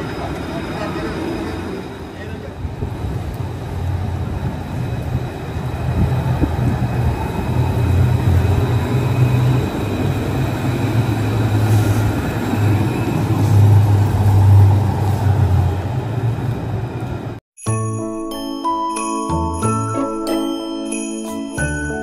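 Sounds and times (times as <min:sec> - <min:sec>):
tram motor hum: 0:00.0 - 0:17.4
tram rolling rumble on rails: 0:00.0 - 0:17.4.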